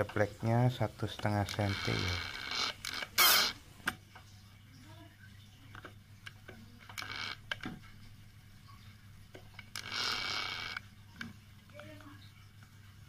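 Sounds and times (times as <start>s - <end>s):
drill bit scraping plywood: 1.4s - 3.6s.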